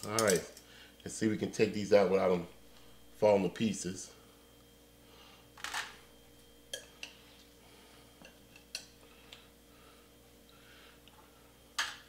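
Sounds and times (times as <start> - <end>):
metal tongs clicking on crock: 0.0 - 0.6.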